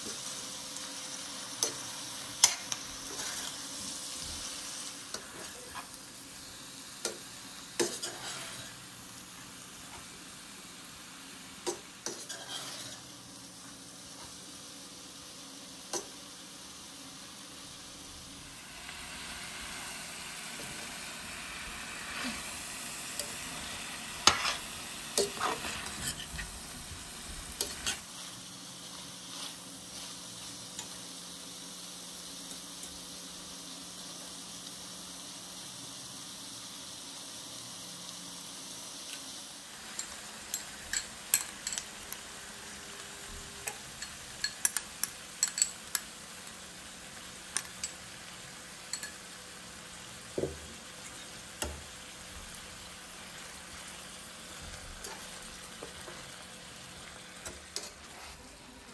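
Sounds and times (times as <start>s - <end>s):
food sizzling in a pot: 0.0s - 58.9s
metal spoon scraping pan: 7.8s - 8.8s, 12.0s - 13.0s, 24.2s - 26.4s.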